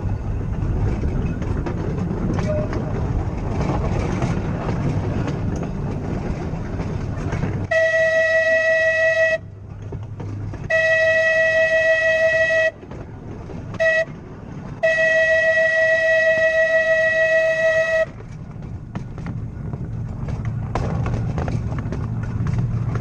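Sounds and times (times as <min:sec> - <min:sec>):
tram rumbling on rails: 0:00.0 - 0:23.0
tram horn blasts: 0:07.6 - 0:09.7, 0:10.5 - 0:13.1, 0:13.7 - 0:18.4.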